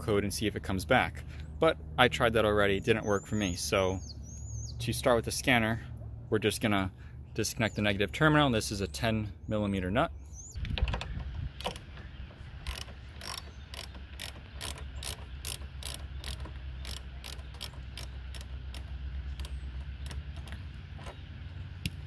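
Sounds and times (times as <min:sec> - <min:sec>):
ratchet wrench clicking: 0:12.6 - 0:20.6.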